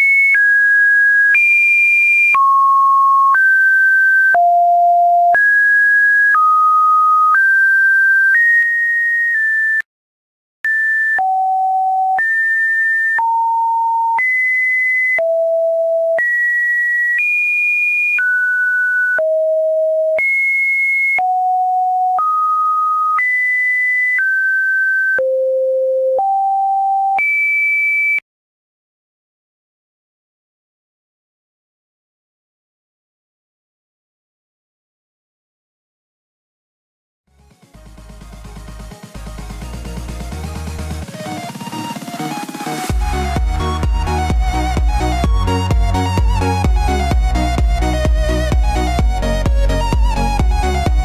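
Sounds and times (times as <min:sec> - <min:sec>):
electronic beeps at random pitches: 0:00.0 - 0:09.8, 0:10.7 - 0:28.2, 0:40.8 - 0:51.0.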